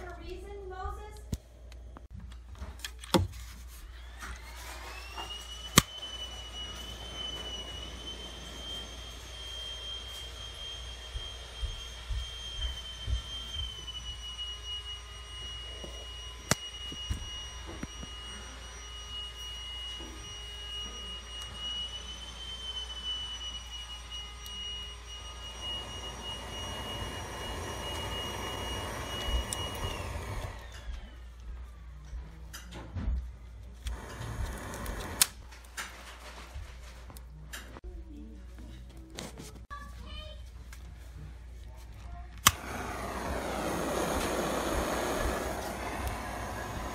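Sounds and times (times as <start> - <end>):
electric blower fan whine: 3.7 - 35.7, 42.3 - 46.9
butane torch flame hiss: 25.4 - 30.7, 33.9 - 35.5, 42.4 - 46.9.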